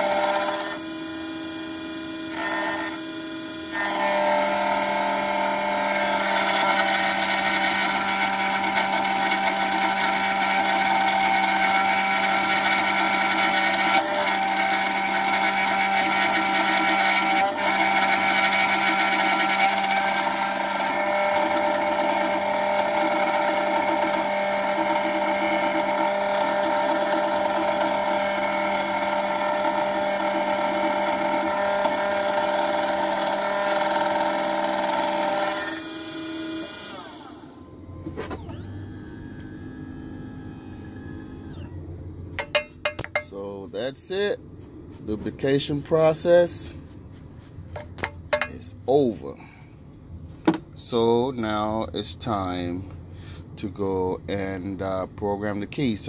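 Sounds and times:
key cutting machine whining: 0.0s - 42.1s
small knocks: 42.4s - 43.3s.

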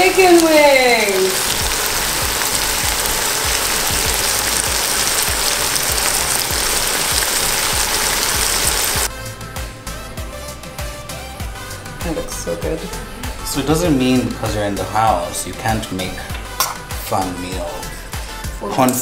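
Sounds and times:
chicken wings sizzling in pan: 0.0s - 9.1s.

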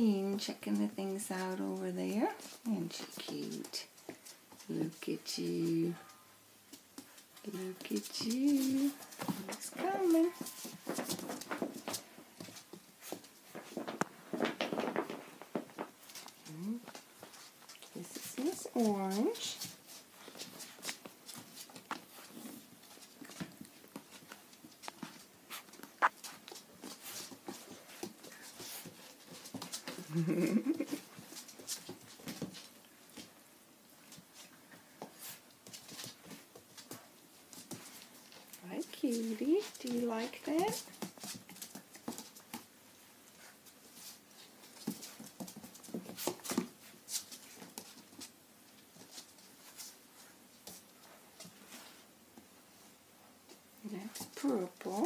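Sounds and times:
puppy claws clicking on floor: 34.0s - 52.5s.

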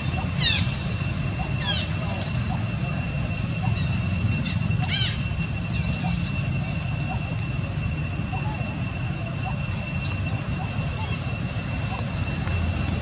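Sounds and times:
high whine: 0.0s - 13.0s
baby monkey squealing: 0.2s - 0.8s, 3.7s - 5.3s.

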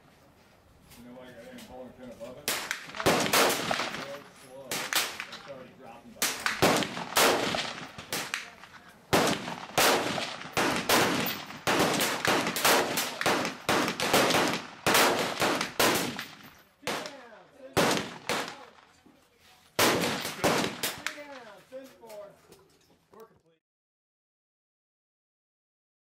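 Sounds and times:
rifle shots echoing: 2.4s - 5.6s, 6.2s - 19.0s, 19.8s - 21.4s.

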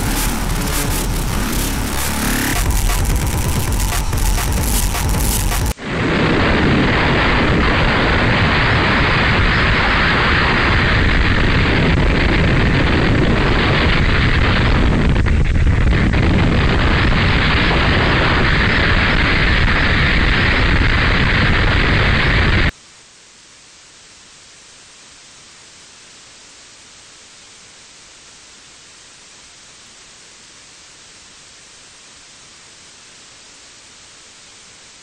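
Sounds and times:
loud static noise: 0.0s - 35.0s
faint steady hiss: 22.7s - 35.0s.

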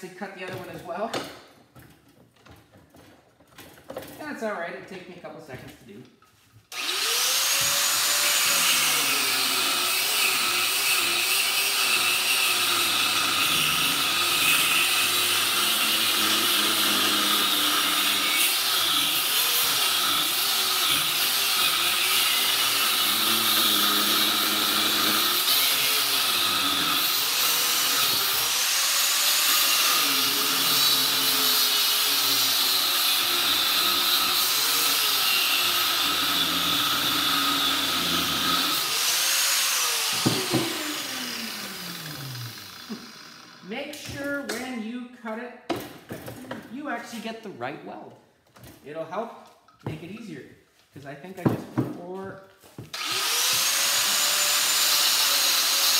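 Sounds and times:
rotary tool grinding metal: 6.7s - 43.8s, 52.9s - 55.9s.

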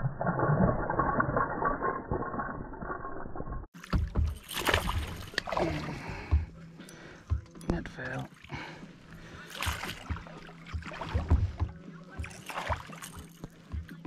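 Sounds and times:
fish thrashing and splashing: 3.8s - 6.5s, 8.3s - 13.7s
water splashing beside kayak: 3.8s - 6.6s, 7.8s - 13.7s.

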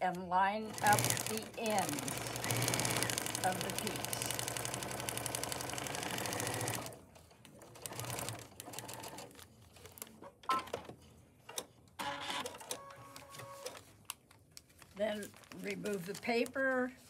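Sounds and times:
sewing machine stitching: 0.7s - 7.0s.

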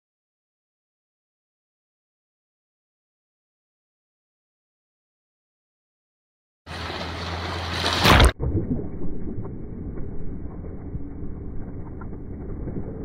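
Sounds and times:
surf rushing over reef: 6.7s - 13.0s.

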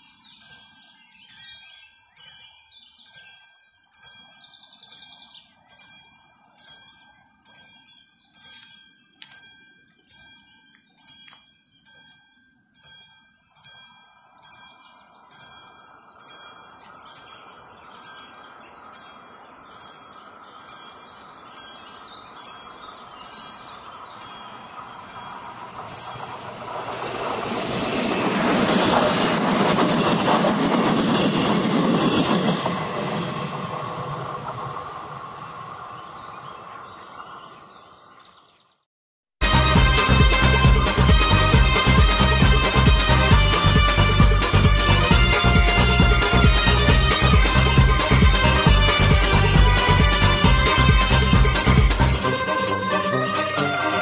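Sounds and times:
train rumbling past: 15.2s - 37.3s, 39.4s - 54.0s.

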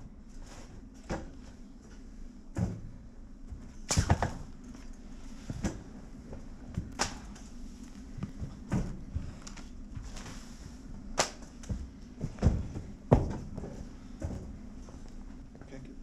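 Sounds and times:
steady low hum: 0.0s - 16.0s
knocks and thuds: 11.7s - 14.5s.

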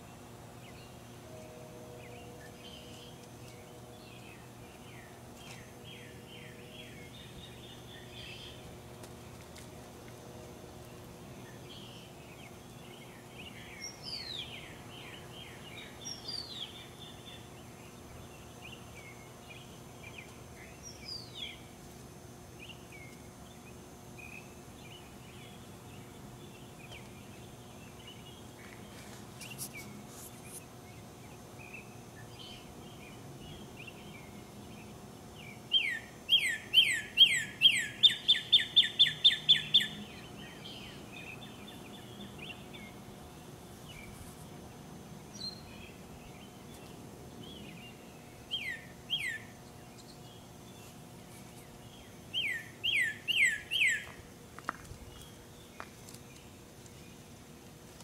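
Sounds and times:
steady low hum: 0.0s - 58.0s
birds chirping and trilling: 2.0s - 8.8s, 10.9s - 21.8s, 22.5s - 57.4s
whistled bird notes: 35.7s - 41.6s, 52.3s - 54.1s.

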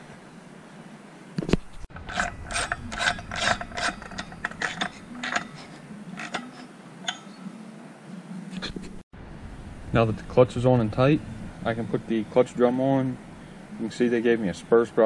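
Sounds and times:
hand ratchet clicking: 1.9s - 7.2s.

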